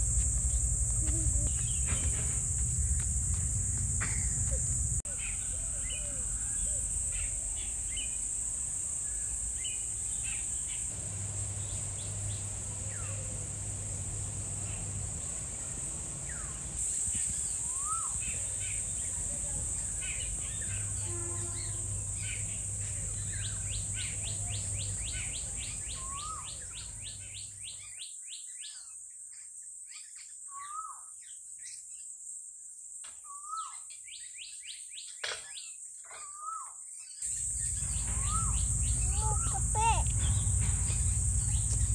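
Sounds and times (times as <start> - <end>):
high insect drone: 0.0 - 28.0, 37.2 - 41.9
bird upswept call: 14.5 - 29.0, 33.2 - 41.9.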